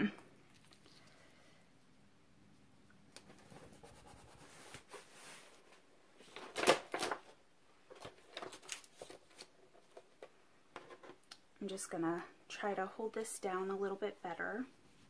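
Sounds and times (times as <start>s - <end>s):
paper and plastic rustling: 4.4s - 10.3s.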